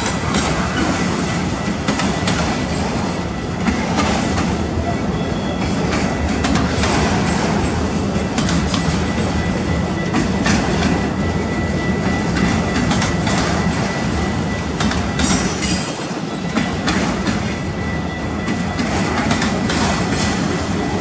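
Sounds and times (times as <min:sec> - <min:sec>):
wheels clacking over rail joints: 0:00.0 - 0:04.8, 0:05.5 - 0:21.0
steel wheels rumbling on rail: 0:00.0 - 0:21.0
high wheel squeal: 0:04.6 - 0:06.3, 0:08.8 - 0:21.0.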